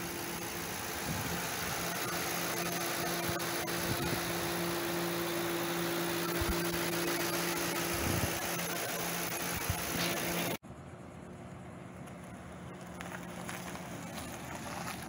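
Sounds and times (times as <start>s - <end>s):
steady hum: 0.0s - 13.4s
car engine idling: 0.0s - 15.0s.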